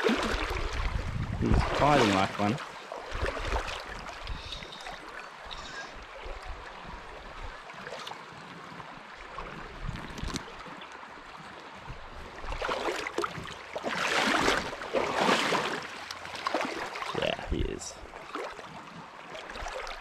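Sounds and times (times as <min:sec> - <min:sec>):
fish splashing: 0:00.0 - 0:00.8, 0:12.6 - 0:17.1
river water rushing: 0:01.5 - 0:09.8, 0:10.4 - 0:17.4.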